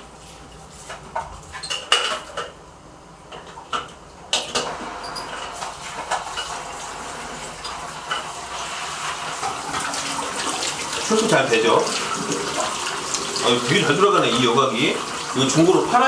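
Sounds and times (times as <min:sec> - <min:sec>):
aquarium filter rushing water: 0:04.6 - 0:16.0.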